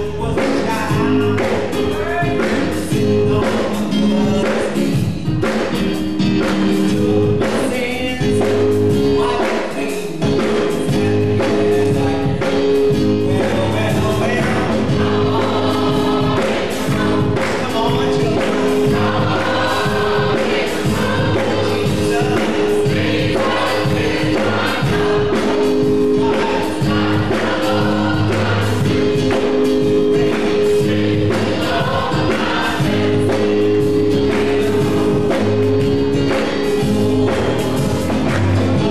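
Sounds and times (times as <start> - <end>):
keyboard accompaniment: 0.0 - 38.9
steady beat: 0.0 - 38.9
choir singing: 13.2 - 38.9.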